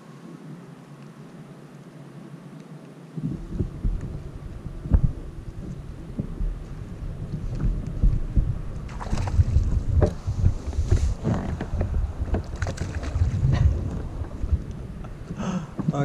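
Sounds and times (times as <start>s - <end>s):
wind rumbling on microphone: 3.1s - 16.0s
water splashing: 8.8s - 16.0s.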